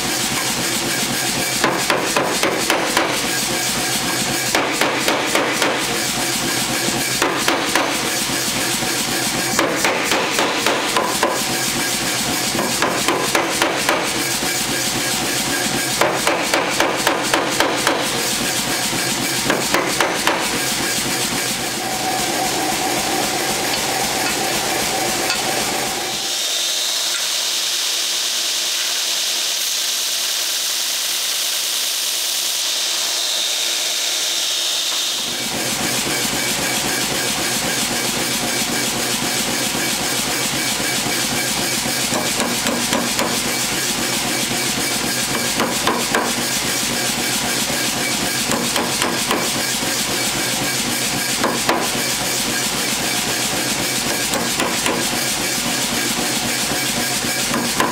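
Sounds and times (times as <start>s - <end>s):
power hammer pounding steel: 0.4s - 27.2s, 39.2s - 57.9s.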